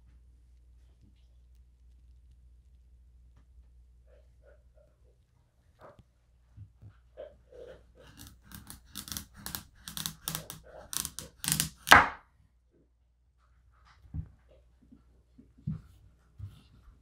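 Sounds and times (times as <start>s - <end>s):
knife cutting through squash: 8.0s - 12.2s
knife knocking cutting board: 8.1s - 12.2s.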